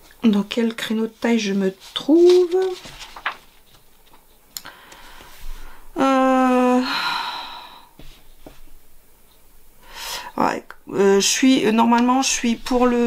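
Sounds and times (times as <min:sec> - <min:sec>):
woman's held wordless vocal: 0:05.9 - 0:07.9
woman sighing: 0:06.0 - 0:08.0.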